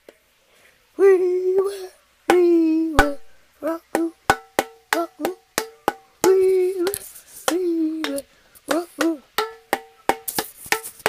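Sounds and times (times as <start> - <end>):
child singing: 1.0 - 4.2, 4.9 - 5.4, 6.2 - 9.3
hollow knocks on can drum: 4.3 - 6.1, 9.0 - 11.0.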